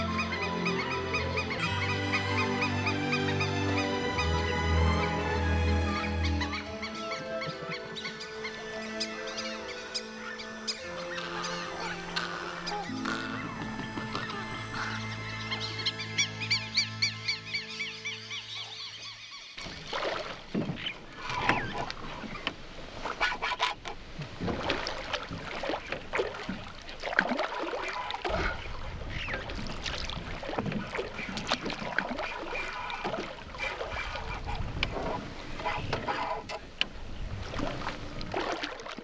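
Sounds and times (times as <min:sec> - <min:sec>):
birds calling: 0:00.0 - 0:19.9
fish splashing in river: 0:19.6 - 0:22.0, 0:37.4 - 0:39.0.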